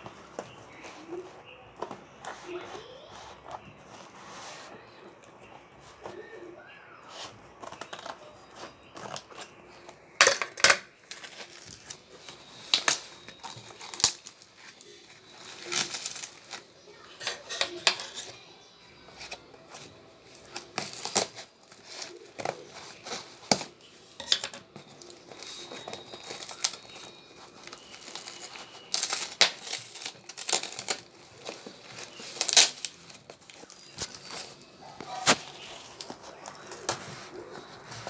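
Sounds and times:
paper tearing and crinkling: 11.0 - 18.3, 19.3 - 23.8, 24.7 - 38.0.

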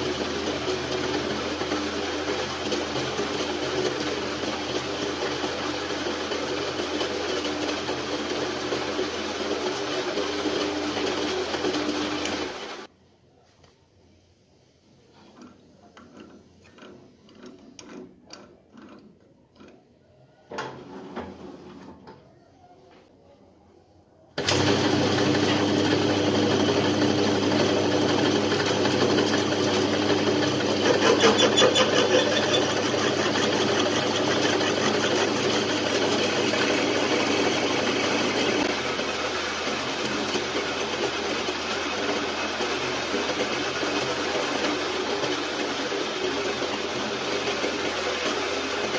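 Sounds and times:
metal lathe drilling: 24.4 - 48.9.

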